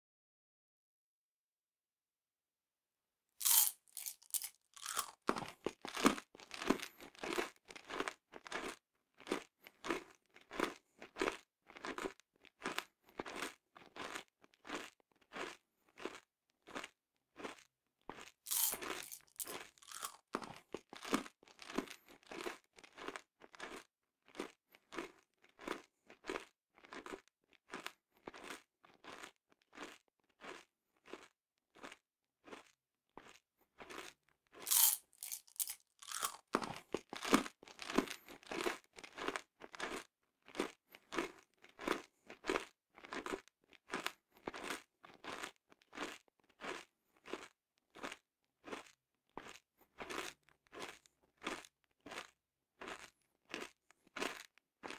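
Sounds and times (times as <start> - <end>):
candy crunching while chewing: 3.4 - 54.9.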